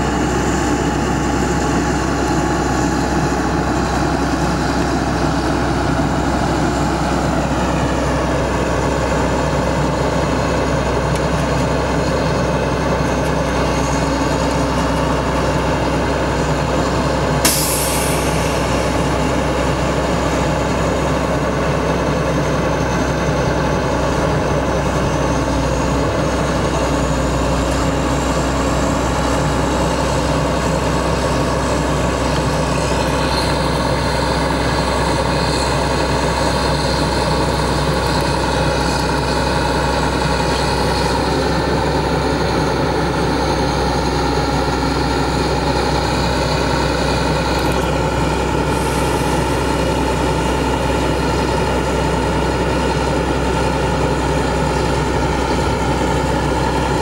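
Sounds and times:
diesel truck engine running: 0.0 - 57.0
short sharp air hiss: 17.4 - 19.6.

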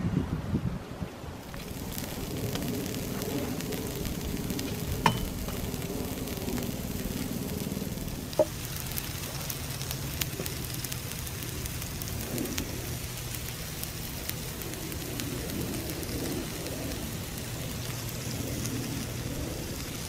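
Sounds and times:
faint crackling: 1.4 - 20.0
low hum: 1.4 - 20.0
steam hissing: 1.4 - 20.0.

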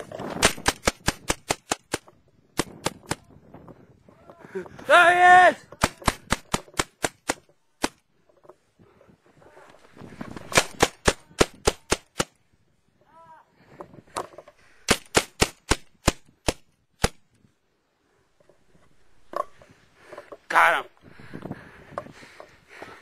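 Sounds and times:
rapid gunfire: 0.4 - 2.0, 5.8 - 8.0, 10.5 - 12.3.

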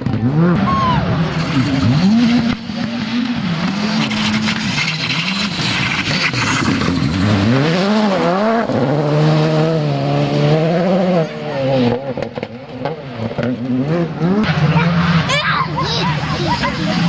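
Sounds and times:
rally car engine revving: 0.0 - 17.0
gravel spraying from tyres: 3.8 - 8.2.

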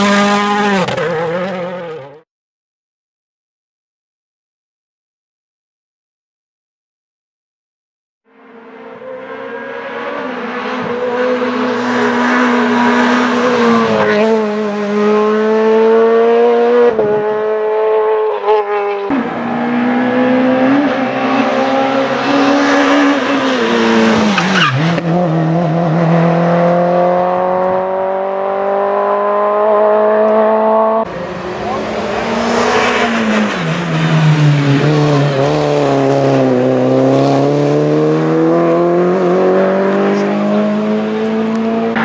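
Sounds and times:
rally car engine revving: 0.0 - 2.2, 8.4 - 42.0.

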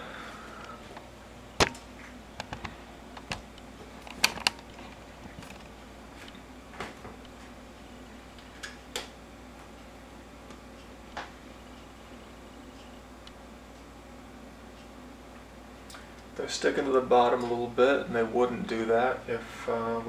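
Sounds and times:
faint steady hum: 0.0 - 20.0
sharp clicks and light knocks: 1.0 - 7.4.

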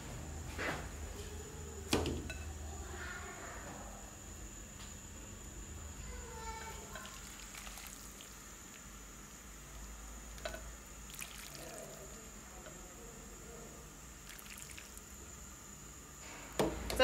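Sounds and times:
broth pouring and trickling: 6.9 - 8.9, 11.1 - 12.2, 14.2 - 15.0.

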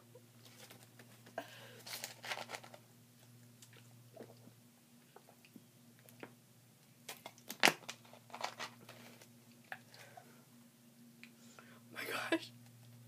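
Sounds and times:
person drinking and swallowing: 3.7 - 6.3.

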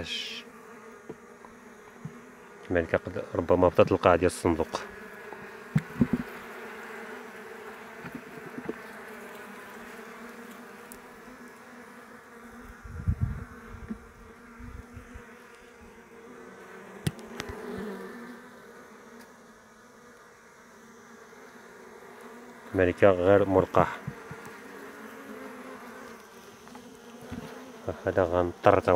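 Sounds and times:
bees humming: 0.0 - 28.9
dull low knocks: 5.7 - 6.4.

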